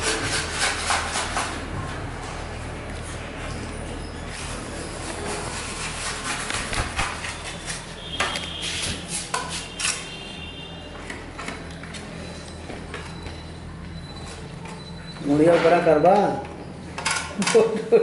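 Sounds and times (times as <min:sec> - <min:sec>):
metal trowels scraping plaster: 0:00.0 - 0:01.6, 0:04.1 - 0:10.2.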